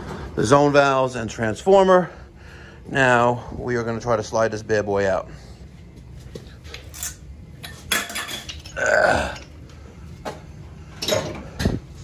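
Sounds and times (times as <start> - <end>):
person grunting: 8.7 - 9.5.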